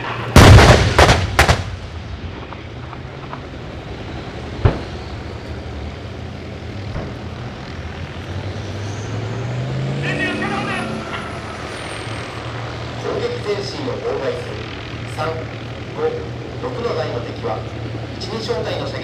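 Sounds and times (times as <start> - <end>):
gunfire blasts: 0.0 - 3.5
vehicle engines droning: 0.0 - 19.0.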